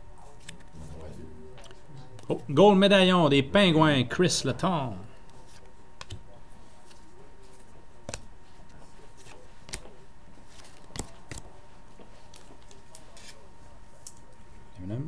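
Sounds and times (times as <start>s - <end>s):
faint steady hum: 0.0s - 15.0s
trading cards clicking and snapping: 6.0s - 6.2s, 9.2s - 11.5s.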